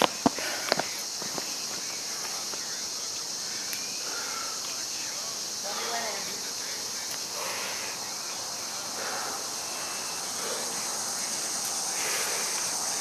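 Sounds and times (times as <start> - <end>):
man breathing hard: 0.0 - 2.5, 3.3 - 4.8, 5.5 - 13.0
steady high hiss: 0.0 - 13.0.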